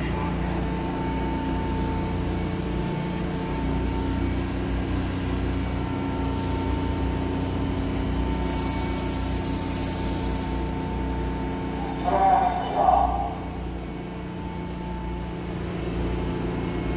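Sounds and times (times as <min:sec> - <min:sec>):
train equipment humming and whining: 0:00.0 - 0:16.9
air hiss: 0:08.4 - 0:10.6.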